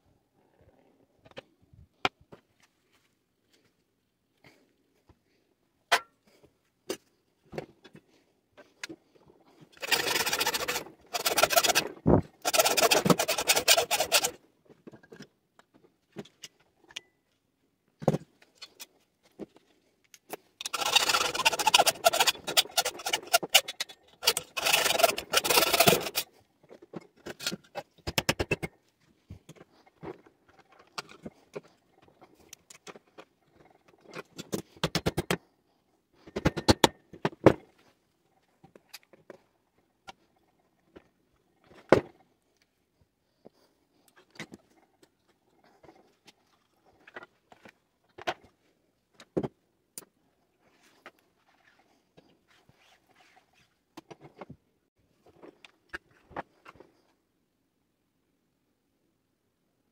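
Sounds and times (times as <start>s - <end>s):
metal scraping: 9.8s - 14.4s, 20.6s - 26.3s.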